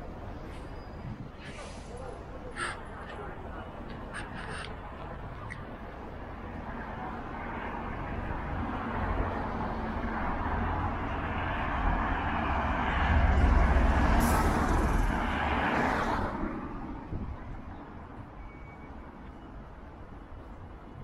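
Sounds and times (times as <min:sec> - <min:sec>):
brief sharp hiss: 0:01.4 - 0:02.0
vehicle driving past: 0:08.8 - 0:16.5.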